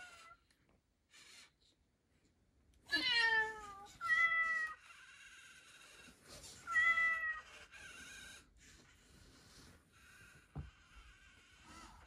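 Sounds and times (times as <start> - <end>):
recorded cat meows: 6.6 - 7.5.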